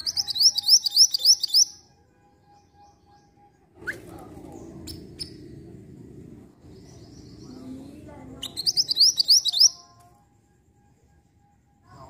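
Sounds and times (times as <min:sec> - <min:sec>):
bird chirping: 0:00.0 - 0:10.0
low background rumble: 0:03.8 - 0:09.2.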